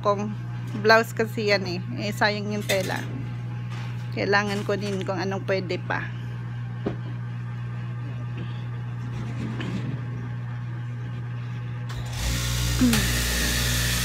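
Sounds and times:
low steady hum: 0.0 - 14.0
cloth cutting machine whining: 11.9 - 14.0.

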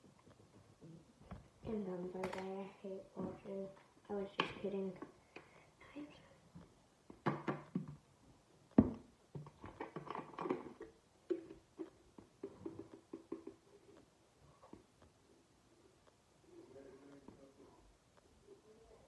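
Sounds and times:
plastic bottle knock: 7.2 - 8.0, 12.4 - 13.6.

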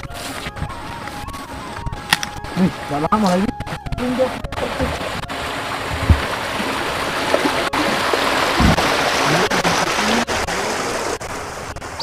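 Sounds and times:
running water: 0.0 - 12.0
dull low knocks: 3.6 - 9.2.

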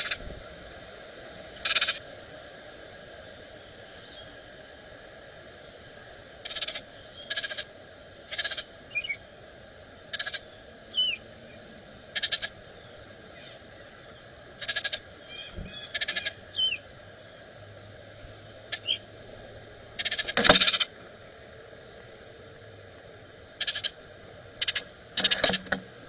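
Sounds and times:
birds chattering rattles: 1.6 - 2.0, 8.3 - 9.2, 10.0 - 16.8, 18.4 - 19.1, 20.0 - 20.9, 23.6 - 24.0, 24.6 - 25.8
slurred whistled bird notes: 10.9 - 11.2, 15.3 - 16.8.

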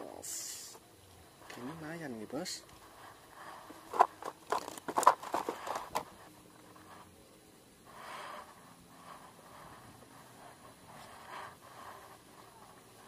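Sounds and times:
soft hiss: 0.0 - 13.0
sharp clicks and crackles: 3.9 - 6.1.

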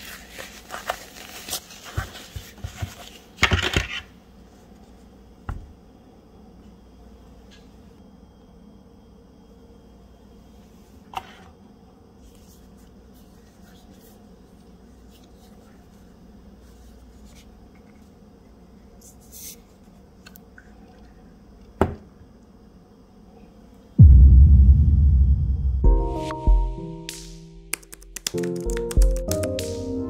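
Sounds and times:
loud low boom: 24.0 - 26.1.

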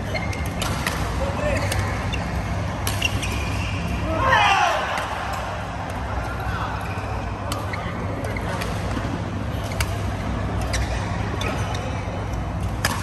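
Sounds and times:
rackets striking shuttlecocks: 12.3 - 13.0.

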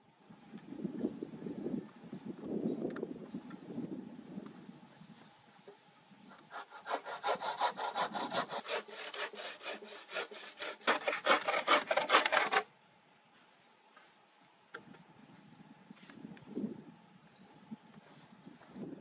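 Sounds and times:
hand saw cutting log: 6.3 - 12.7.

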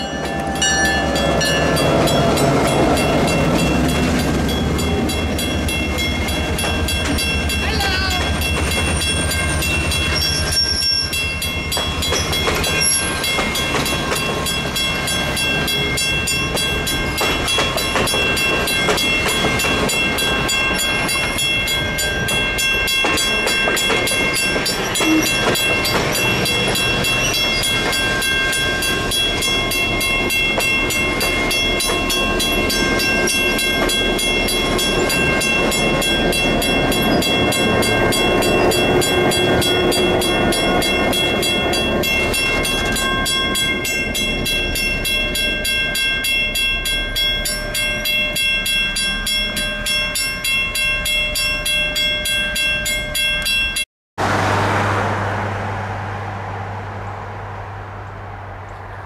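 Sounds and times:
high wheel squealing: 0.0 - 20.7, 22.3 - 44.0
train wheels clickety-clack on rails: 0.0 - 50.3.

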